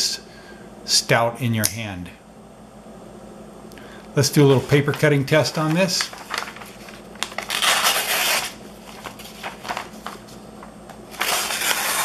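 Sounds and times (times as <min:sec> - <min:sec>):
paper rustling: 0:04.4 - 0:12.0
knife slicing paper: 0:05.6 - 0:10.2, 0:11.1 - 0:12.0.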